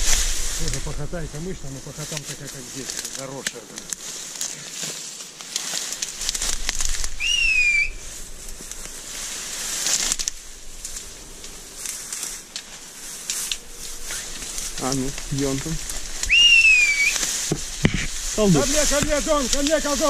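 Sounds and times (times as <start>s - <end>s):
dry reeds rustling underfoot: 0.0s - 20.0s
rising whistle: 7.2s - 8.1s, 16.2s - 17.2s.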